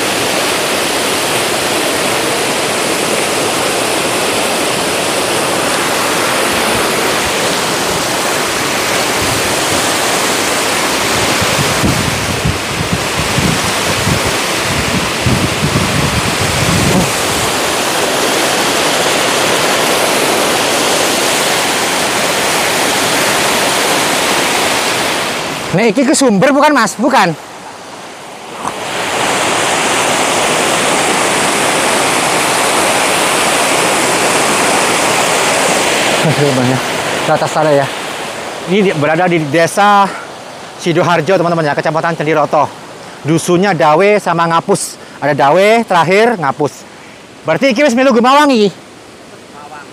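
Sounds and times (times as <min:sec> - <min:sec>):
wind buffeting microphone: 0:00.0 - 0:25.7
waterfall rushing: 0:00.0 - 0:49.9.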